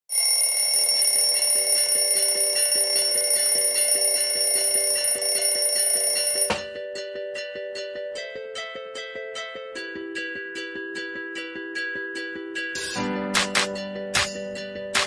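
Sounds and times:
electronic alarm ringing: 0:00.1 - 0:06.6.

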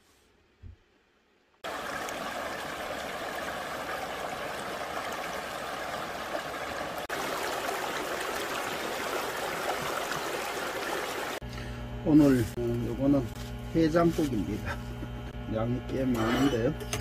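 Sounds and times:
river water rushing over rocks: 0:01.7 - 0:11.4.

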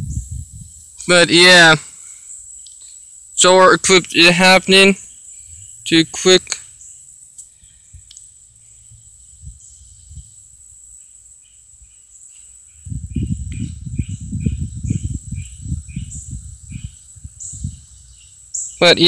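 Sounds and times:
insects calling: 0:00.0 - 0:19.0
choppy low rumbling: 0:03.8 - 0:06.6, 0:12.8 - 0:18.2.

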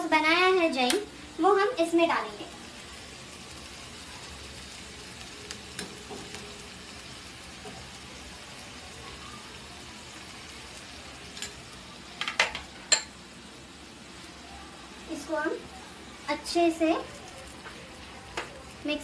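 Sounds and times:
vegetables sizzling in a frying pan: 0:00.0 - 0:19.0
spoon clinking on bowl and pan: 0:11.3 - 0:11.6, 0:12.2 - 0:13.2.

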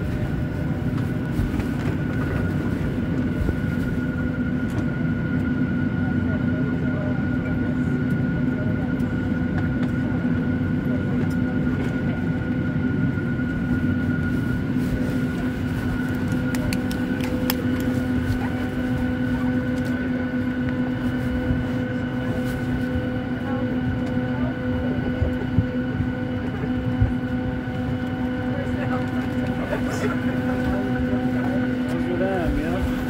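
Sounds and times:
aircraft air system hum: 0:00.0 - 0:33.0
passenger chatter: 0:00.0 - 0:33.0.

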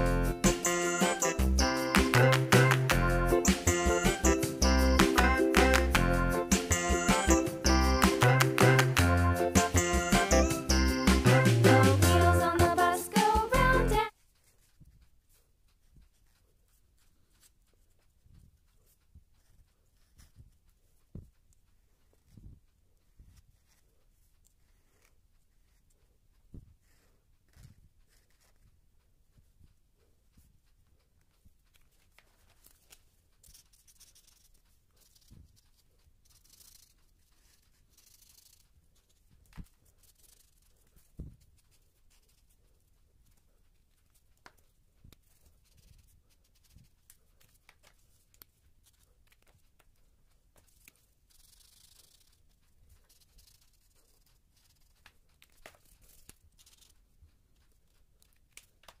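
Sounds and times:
marker scratching on paper: 0:13.2 - 0:22.4, 0:23.0 - 0:29.6, 0:31.2 - 0:58.0.

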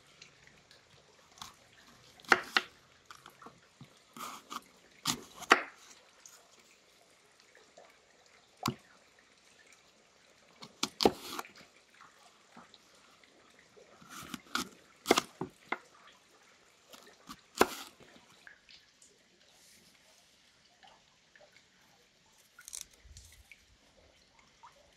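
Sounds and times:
knife slicing crisp apples: 0:01.4 - 0:03.2, 0:04.2 - 0:05.8, 0:10.6 - 0:11.5, 0:14.0 - 0:15.6, 0:16.9 - 0:18.0
blade knocking cutting board: 0:17.3 - 0:17.9.

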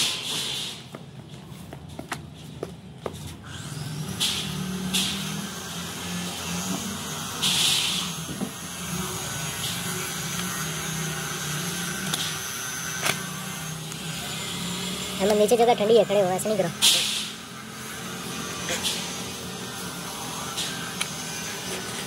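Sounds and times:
motor humming: 0:03.4 - 0:22.0
short hissing scrapes: 0:07.4 - 0:08.2.

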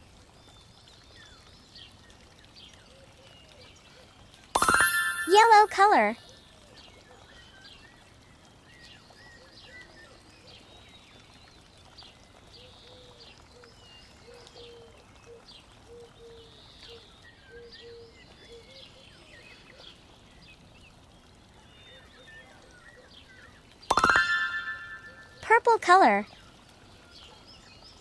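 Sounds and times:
birds chirping and whistling: 0:23.9 - 0:25.4
low repeated bird notes: 0:23.9 - 0:26.5.

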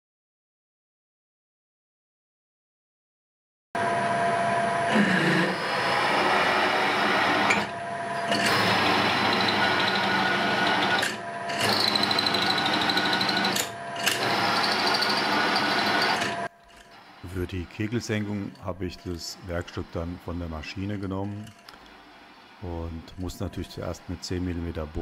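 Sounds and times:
drill cutting steel: 0:03.8 - 0:25.0
drill press motor whine: 0:03.8 - 0:25.0.

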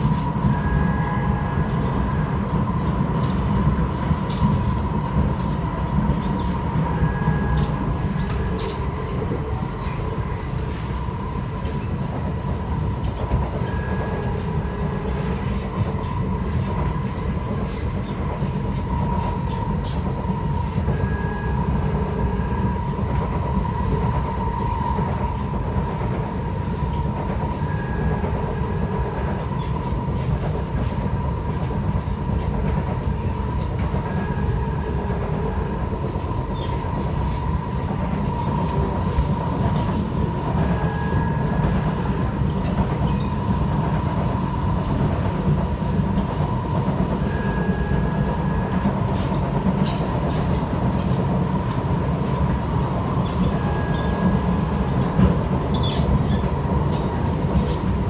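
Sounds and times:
train motor whine: 0:00.0 - 0:11.9, 0:13.6 - 0:30.3, 0:33.2 - 0:51.1, 0:52.4 - 0:56.5
train wheels rumbling on track: 0:00.0 - 0:58.0.

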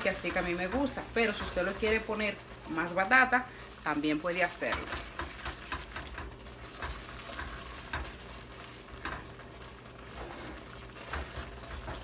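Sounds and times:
wooden spoon scraping a pot: 0:04.5 - 0:12.0.

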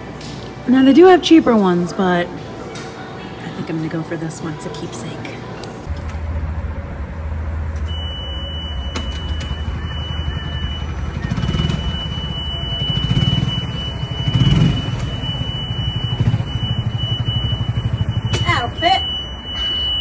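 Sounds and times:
reverse warning buzzer: 0:07.9 - 0:20.0.

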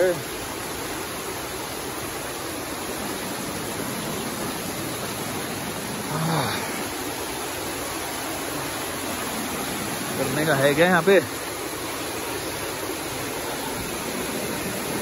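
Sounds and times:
floodwater rushing: 0:00.0 - 0:15.0
brief low vocal sound: 0:06.1 - 0:06.8.

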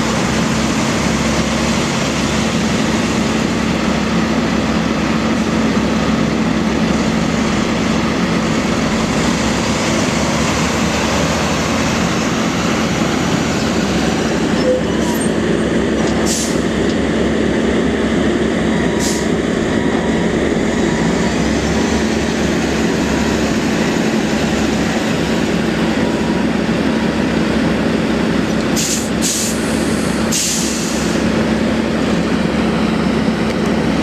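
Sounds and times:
truck diesel engine running: 0:00.0 - 0:34.0
air brakes hissing: 0:16.2 - 0:16.7, 0:19.0 - 0:19.4, 0:28.8 - 0:31.3.

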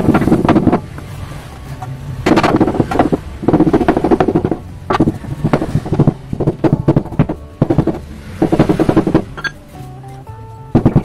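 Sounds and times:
hammer striking sheet metal: 0:02.2 - 0:09.6.

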